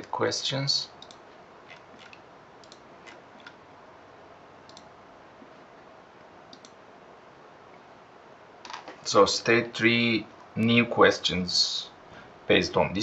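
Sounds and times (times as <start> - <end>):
low steady hiss: 0.0 - 13.0
computer mouse clicks: 1.0 - 3.6, 4.7 - 4.9, 6.5 - 6.8.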